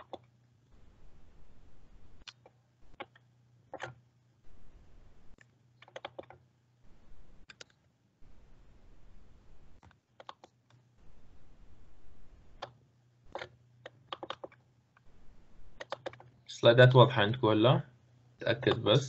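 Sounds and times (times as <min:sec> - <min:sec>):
keyboard and mouse clicks: 0:00.0 - 0:00.3, 0:02.2 - 0:04.0, 0:05.4 - 0:06.4, 0:07.4 - 0:07.8, 0:09.8 - 0:10.8, 0:12.6 - 0:14.6, 0:15.8 - 0:16.3.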